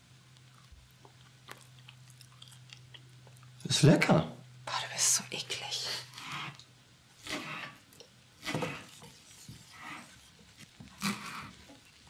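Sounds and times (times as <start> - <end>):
knife cutting on a board: 7.2 - 7.8, 8.4 - 10.2, 11.0 - 11.6.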